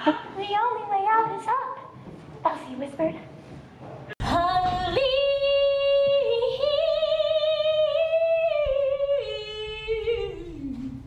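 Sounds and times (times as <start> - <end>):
woman singing with vibrato: 4.2 - 11.0.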